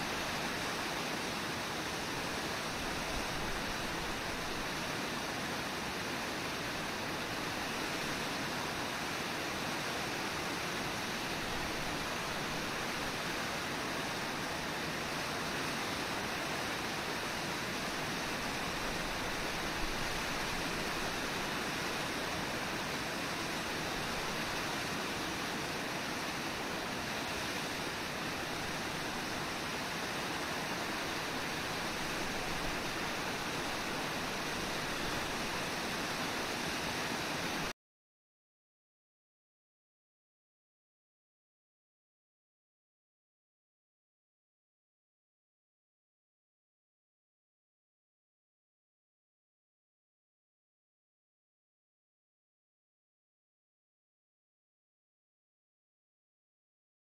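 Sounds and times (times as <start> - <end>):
waterfall rushing: 0.0 - 37.7.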